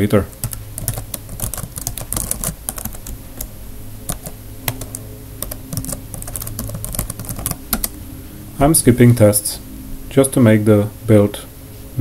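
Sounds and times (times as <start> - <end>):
keyboard typing: 0.3 - 8.0.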